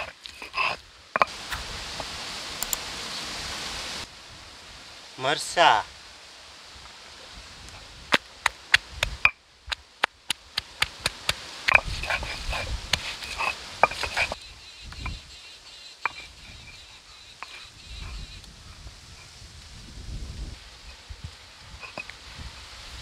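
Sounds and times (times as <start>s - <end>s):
stone roller knocking on slab: 10.8s - 14.4s.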